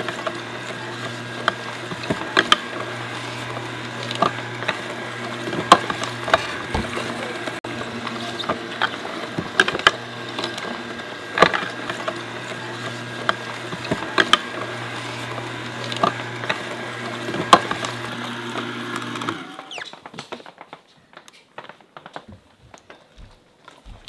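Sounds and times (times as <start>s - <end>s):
juicer motor humming: 0.0s - 20.0s.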